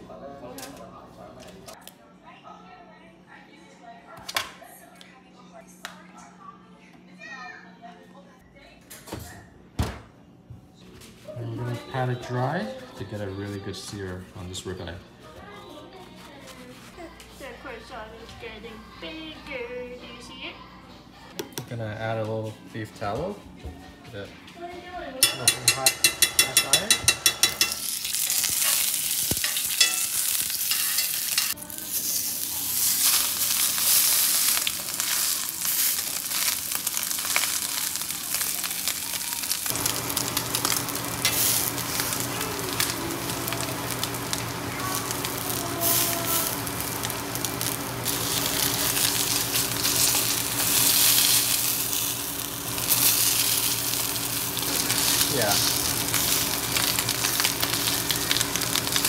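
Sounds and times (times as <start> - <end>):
steak sizzling in a pan: 26.2 - 59.0.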